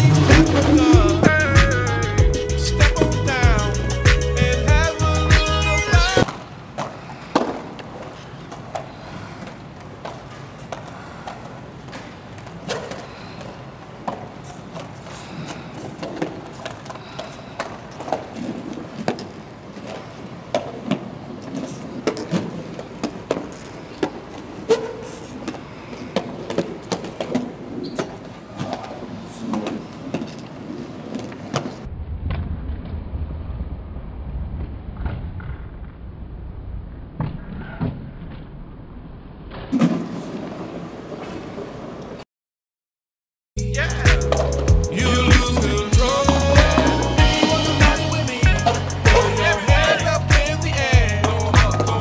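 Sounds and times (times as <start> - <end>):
roller skates rolling on wood: 6.1 - 31.9
skate wheels clicking on boards: 6.2 - 31.9
low hum: 31.9 - 39.5.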